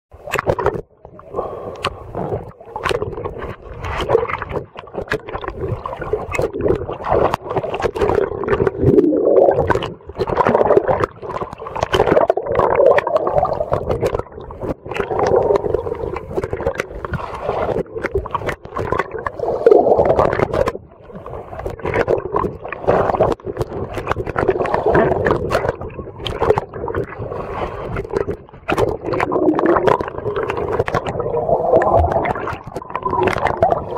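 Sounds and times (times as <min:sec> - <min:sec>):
water sloshing and gurgling: 0:00.1 - 0:33.9.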